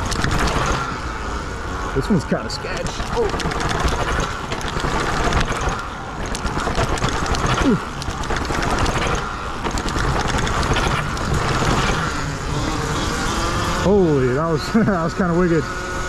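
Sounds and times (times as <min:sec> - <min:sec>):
steady rushing noise: 0:00.0 - 0:16.0.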